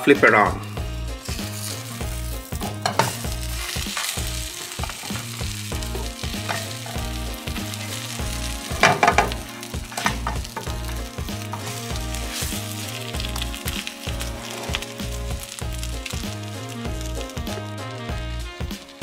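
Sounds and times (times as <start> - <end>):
bread sizzling in butter: 0.1 - 19.0
spatula scraping and knocking: 2.6 - 7.1.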